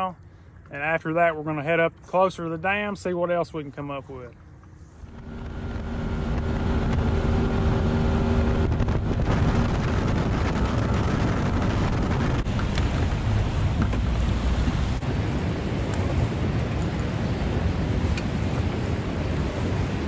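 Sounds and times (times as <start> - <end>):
boat motor running: 4.5 - 20.0
wind on microphone: 5.0 - 20.0
water splashing against hull: 8.4 - 20.0.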